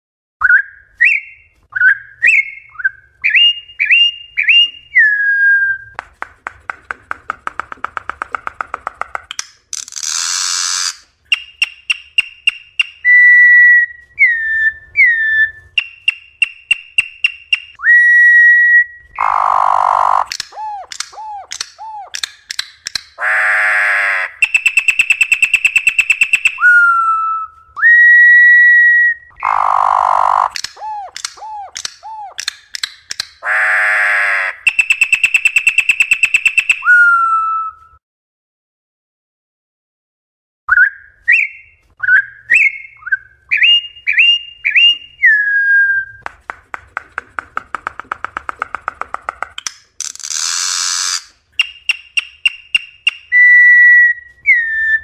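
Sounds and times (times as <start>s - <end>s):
bird whistled song: 0.4s - 6.0s, 10.1s - 23.3s, 24.2s - 33.0s, 34.6s - 38.0s, 40.7s - 46.2s, 50.4s - 55.0s
harsh buzzy bird notes: 19.2s - 21.0s, 23.2s - 25.8s, 29.4s - 30.8s, 33.4s - 35.1s.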